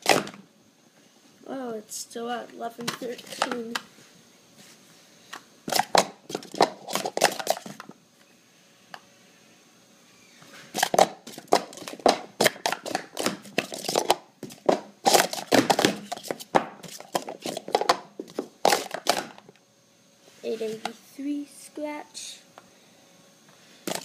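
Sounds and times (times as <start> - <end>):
plastic cups clattering: 5.7 - 7.9, 10.7 - 19.4.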